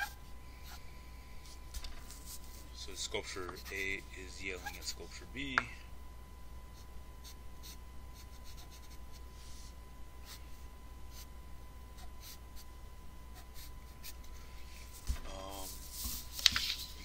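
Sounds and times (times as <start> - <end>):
steady low hum: 0.0 - 17.0
pen scratching on paper: 6.8 - 9.2, 12.0 - 12.7, 13.3 - 14.4.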